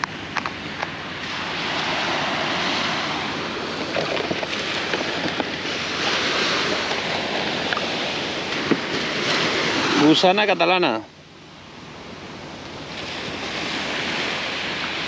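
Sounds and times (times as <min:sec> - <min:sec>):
wind on microphone: 0:00.0 - 0:10.2
surf washing onto beach: 0:00.0 - 0:11.0, 0:11.7 - 0:15.0.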